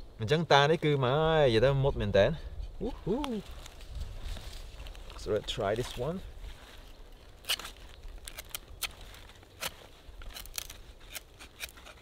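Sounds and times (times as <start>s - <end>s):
knife cutting wood: 7.4s - 12.0s.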